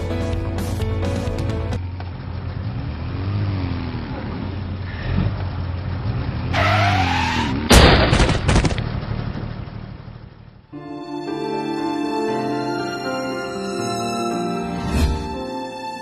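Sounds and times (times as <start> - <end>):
traffic engine hum: 0.0 - 10.8
tyres screeching: 6.5 - 7.7
motorcycle crash bangs: 7.5 - 9.0.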